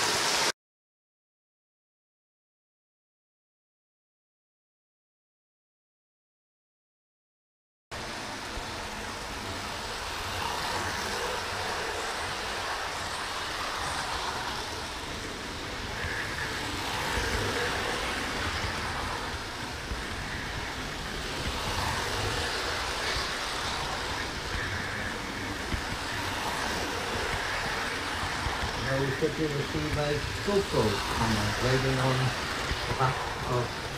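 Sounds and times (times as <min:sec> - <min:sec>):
model train wheels rumbling on rails: 0:08.0 - 0:33.9.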